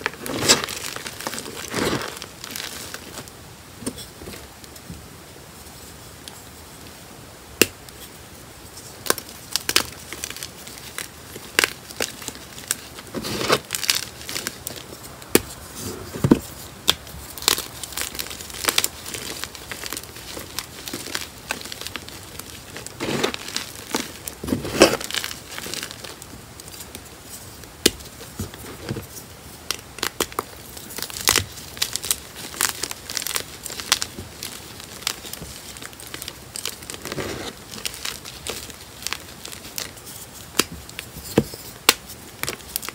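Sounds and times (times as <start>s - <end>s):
chalk crumbling crunch: 0.0s - 3.2s, 8.8s - 42.9s
chalk blocks cracking: 9.0s - 42.9s.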